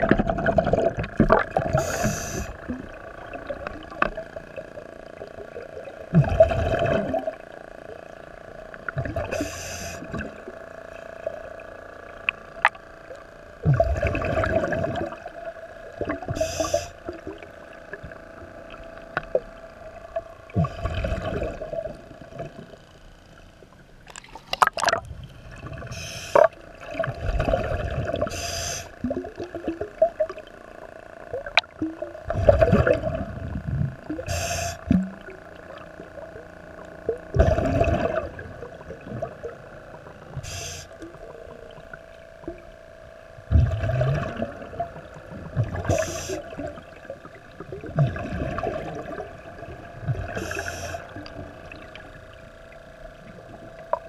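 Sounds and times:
exhaled bubbles rushing: 0:00.0 - 0:07.5, 0:12.6 - 0:17.5, 0:18.8 - 0:22.8, 0:24.1 - 0:28.4, 0:31.3 - 0:36.0, 0:37.0 - 0:39.7, 0:43.5 - 0:52.1
steady hum: 0:00.0 - 0:54.0
regulator inhale hiss: 0:01.7 - 0:02.6, 0:09.3 - 0:10.2, 0:16.3 - 0:17.1, 0:25.9 - 0:26.5, 0:28.2 - 0:29.0, 0:34.2 - 0:34.9, 0:40.4 - 0:41.0, 0:45.8 - 0:46.7, 0:50.3 - 0:51.2.

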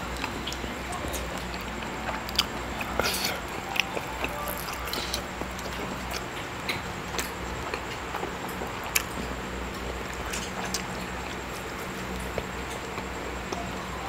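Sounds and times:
wet chewing clicks and smacks: 0:00.2 - 0:13.7.

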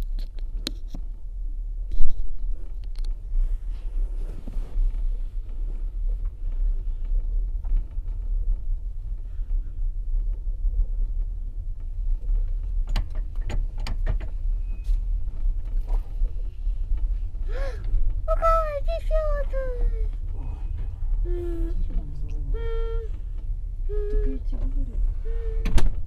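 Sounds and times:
train coach rumbling: 0:01.2 - 0:26.0.

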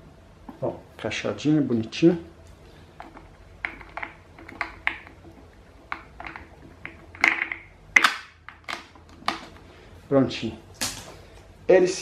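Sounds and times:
plastic clatters: 0:03.0 - 0:09.6.

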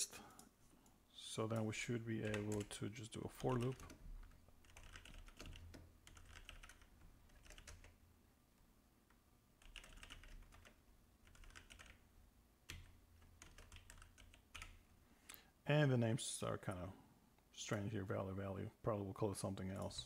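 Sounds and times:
typing on computer keyboard: 0:02.2 - 0:02.7, 0:03.3 - 0:08.0, 0:09.6 - 0:12.0, 0:12.7 - 0:14.8.

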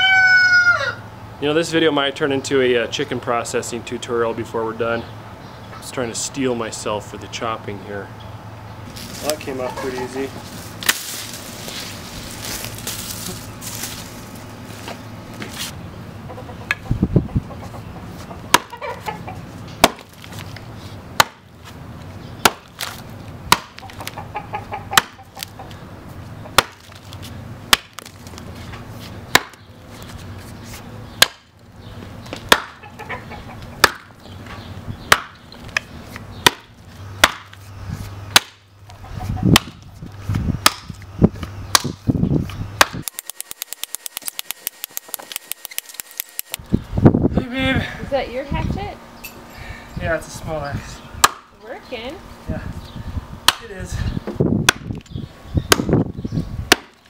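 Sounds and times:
axe chopping wood: 0:18.5 - 0:18.8, 0:19.8 - 0:20.2, 0:21.2 - 0:21.5, 0:22.4 - 0:24.2, 0:24.9 - 0:25.2, 0:26.5 - 0:27.0, 0:27.7 - 0:28.2, 0:29.3 - 0:29.6, 0:31.2 - 0:31.5, 0:32.3 - 0:32.8, 0:33.8 - 0:34.2, 0:35.1 - 0:37.6, 0:38.3 - 0:38.6, 0:39.5 - 0:39.8, 0:40.6 - 0:41.0, 0:41.7 - 0:42.0, 0:42.8 - 0:46.3, 0:51.2 - 0:51.5, 0:53.4 - 0:53.8, 0:54.6 - 0:55.0, 0:55.7 - 0:56.0, 0:56.7 - 0:57.0.

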